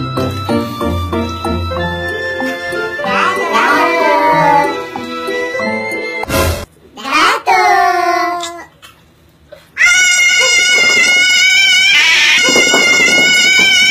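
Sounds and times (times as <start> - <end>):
shrill wavering scream: 9.8 - 13.9
voice crying out: 9.8 - 13.9.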